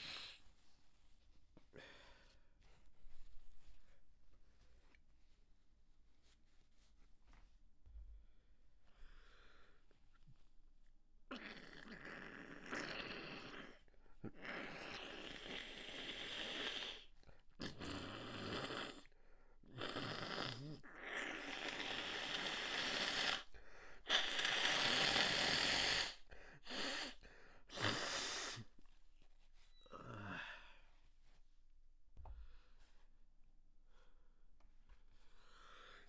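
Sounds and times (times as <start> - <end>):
person sighing: 29.8 - 30.9
person gasping and exhaling: 29.9 - 30.9.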